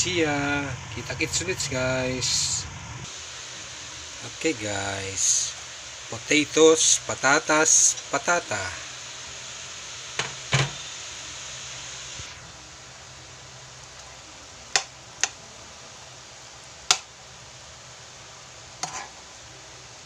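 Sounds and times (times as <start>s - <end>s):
food sizzling in a pan: 0.0s - 20.0s.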